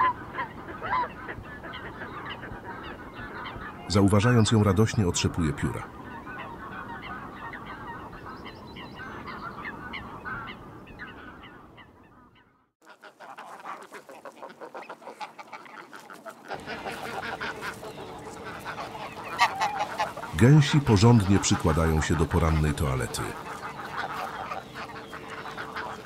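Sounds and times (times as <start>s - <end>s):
geese honking: 0.0s - 26.0s
faint clicking and calls: 12.8s - 22.3s, 23.0s - 26.0s.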